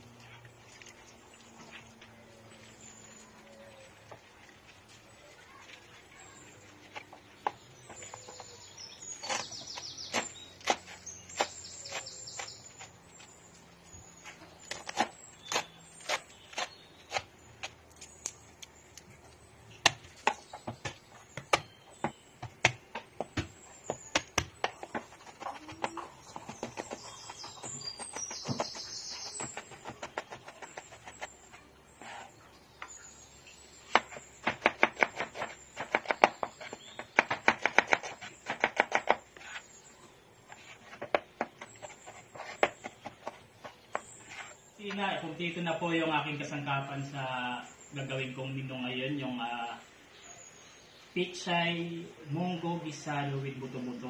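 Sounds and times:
knife chopping on wooden board: 0:09.2 - 0:12.9, 0:19.8 - 0:31.3, 0:33.9 - 0:39.6.

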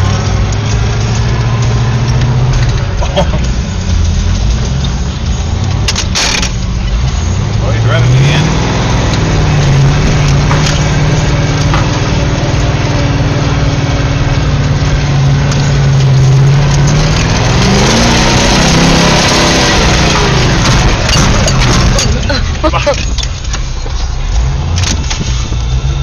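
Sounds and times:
truck engine revving hard: 0:00.0 - 0:23.3
knocks and clatter: 0:09.0 - 0:25.8.

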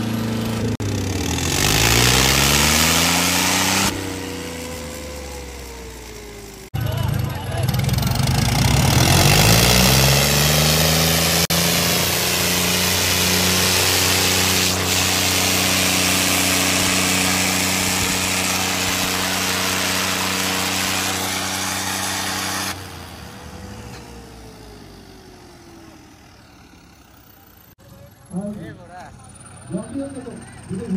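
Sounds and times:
tractor diesel engine under load: 0:00.0 - 0:30.9.

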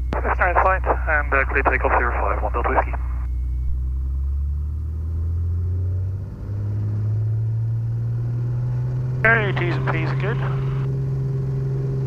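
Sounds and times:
propeller plane engine rising: 0:00.2 - 0:12.0.

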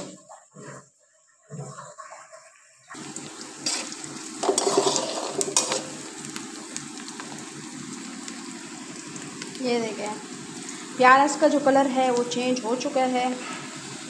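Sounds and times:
onions sizzling in oil: 0:03.0 - 0:14.0
metal spatula scraping pan: 0:03.6 - 0:06.0.

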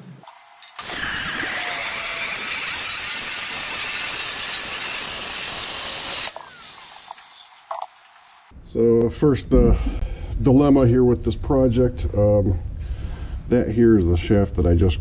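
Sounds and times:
motor winding down: 0:00.8 - 0:07.6
angle grinder cutting metal: 0:00.8 - 0:07.7.

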